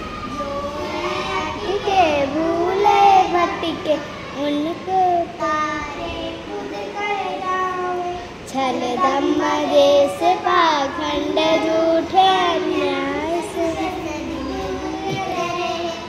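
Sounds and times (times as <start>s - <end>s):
children singing a prayer: 0.0s - 16.0s.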